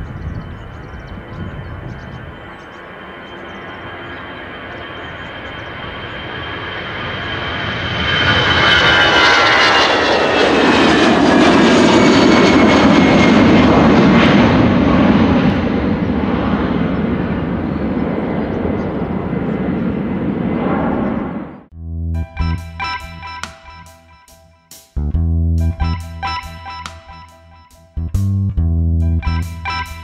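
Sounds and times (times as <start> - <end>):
jet engines roaring: 0.1 - 21.7.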